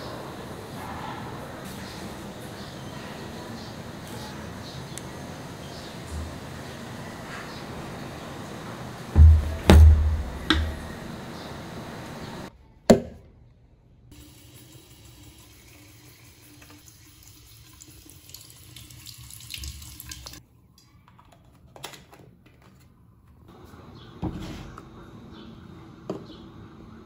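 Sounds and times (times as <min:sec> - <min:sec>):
tap water filling plastic bottle: 0:14.7 - 0:20.4.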